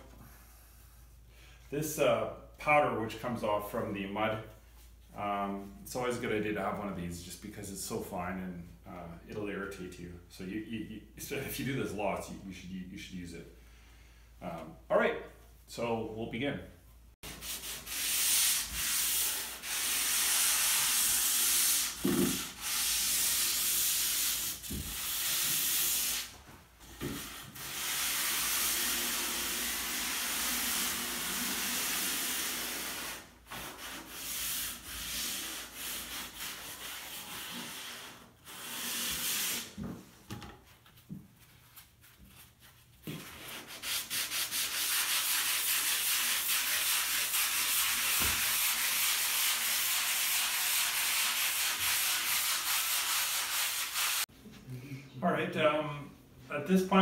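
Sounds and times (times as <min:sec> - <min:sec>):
hand sanding a wall: 0:17.2 - 0:26.4, 0:27.0 - 0:39.8, 0:42.3 - 0:54.3.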